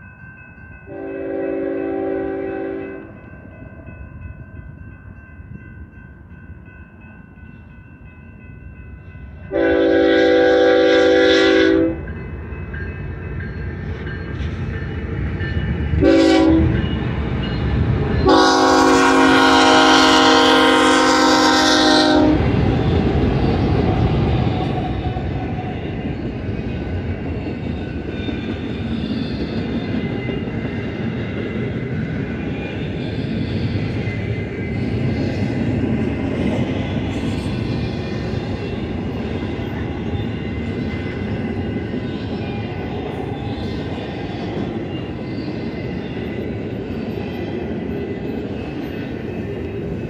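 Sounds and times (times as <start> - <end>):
crossing bell ringing: 0.0 - 35.2
train cars rumbling and rattling: 0.0 - 50.0
locomotive air horn blasts: 0.9 - 3.1, 9.5 - 12.0, 16.0 - 16.8, 18.2 - 22.5.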